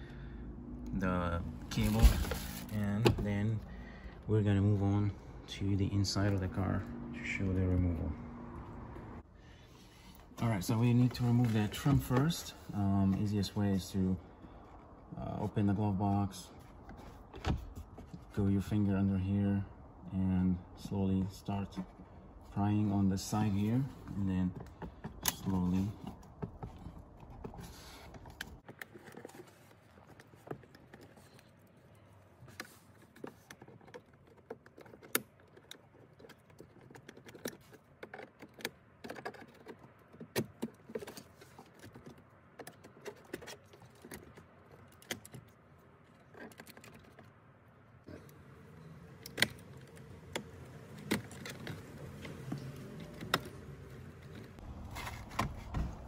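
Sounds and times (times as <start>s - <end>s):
plastic trim clicks and creaks: 23.5s - 47.4s, 48.1s - 56.0s.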